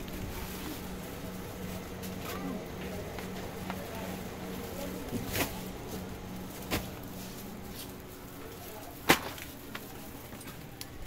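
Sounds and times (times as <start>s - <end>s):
distant chatter: 0.0s - 11.0s
steady low hum: 0.0s - 11.0s.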